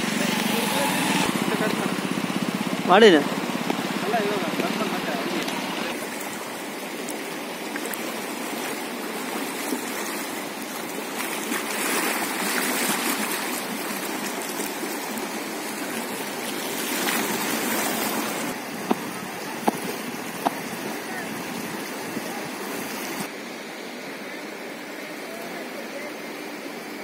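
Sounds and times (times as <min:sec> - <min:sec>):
river rushing in flood: 0:00.0 - 0:27.0.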